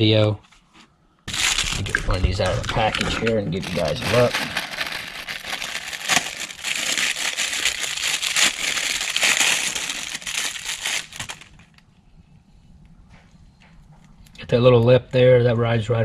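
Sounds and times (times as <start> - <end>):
plastic bag crinkling: 1.3 - 11.8.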